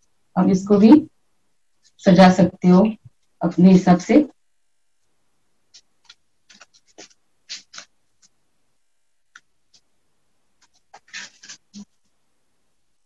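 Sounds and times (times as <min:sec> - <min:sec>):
paper rustling and crinkling: 0:05.7 - 0:08.3, 0:10.6 - 0:12.1.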